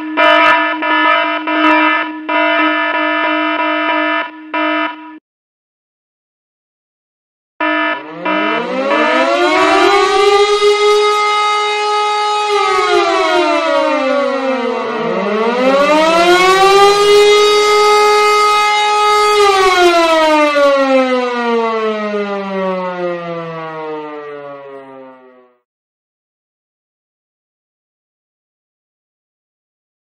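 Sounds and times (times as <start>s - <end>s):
air-raid siren wailing: 0.0s - 5.2s, 7.6s - 25.6s.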